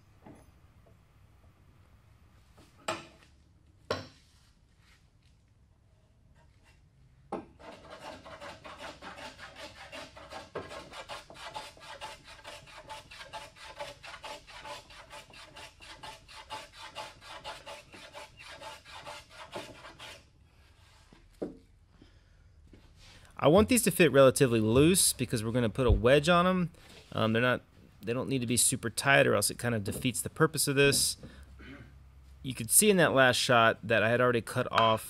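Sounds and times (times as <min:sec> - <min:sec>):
hand tool rubbing on wood: 0:07.6 - 0:21.2.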